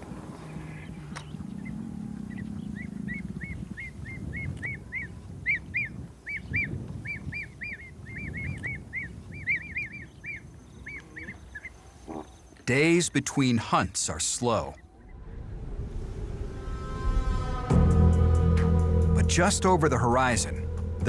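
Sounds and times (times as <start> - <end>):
bird chirping: 0.0 - 13.2.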